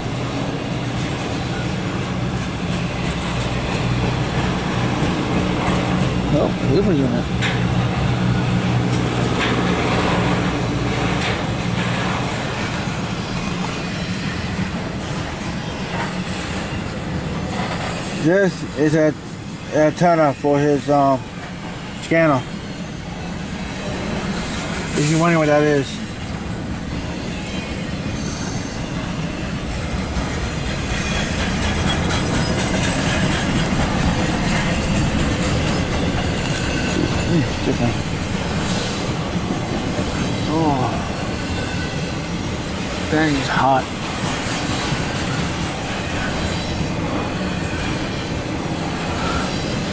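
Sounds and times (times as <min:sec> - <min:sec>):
freight train wheels rumbling: 0:00.0 - 0:49.9
faint high wheel squeal: 0:17.7 - 0:21.2, 0:27.0 - 0:29.6, 0:30.6 - 0:39.1, 0:40.1 - 0:42.5, 0:49.0 - 0:49.9.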